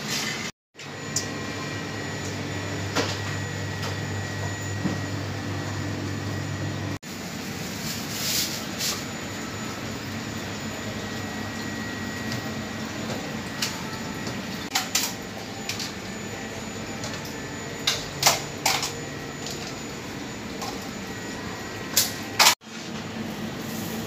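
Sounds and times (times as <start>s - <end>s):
steady background hum: 0.8s - 24.0s.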